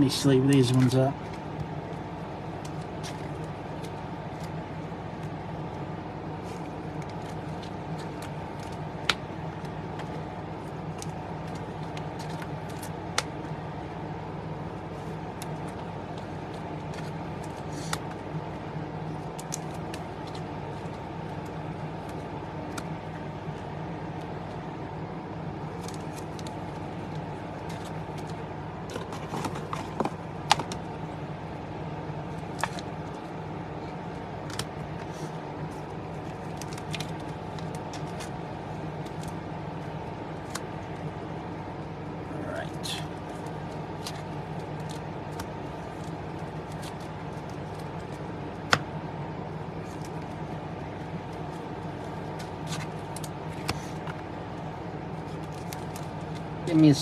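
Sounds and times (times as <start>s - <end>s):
background hum: 0.0s - 57.0s
cards sliding into plastic sleeves: 14.9s - 18.2s, 51.3s - 54.3s.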